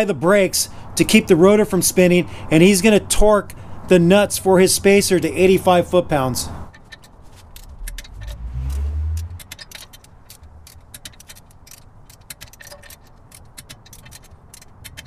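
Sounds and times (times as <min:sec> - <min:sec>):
torque wrench ratchet clicking: 0:07.5 - 0:08.4
low rumble: 0:07.5 - 0:09.5.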